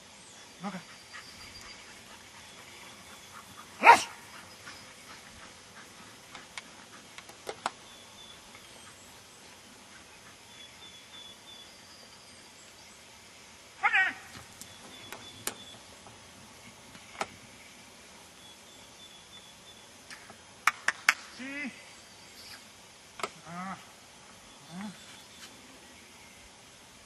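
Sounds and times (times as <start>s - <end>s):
dog barking sharply: 3.8s - 4.2s.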